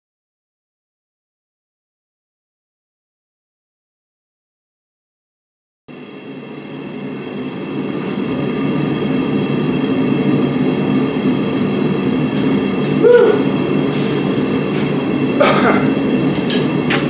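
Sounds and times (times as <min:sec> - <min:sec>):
forge roaring steadily: 0:05.9 - 0:17.0.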